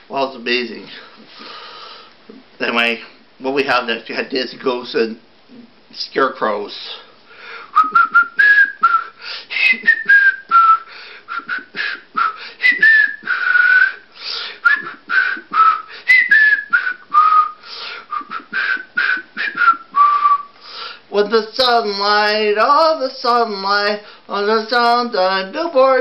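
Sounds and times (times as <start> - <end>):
person whistling a tune: 7.7 - 20.6.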